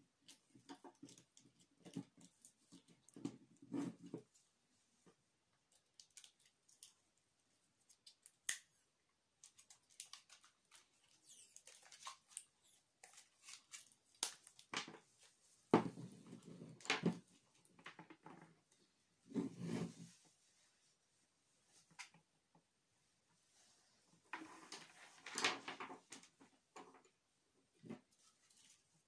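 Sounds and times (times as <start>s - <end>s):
hands handling wires and tape: 0.2s - 4.3s, 5.5s - 7.1s, 7.8s - 15.0s.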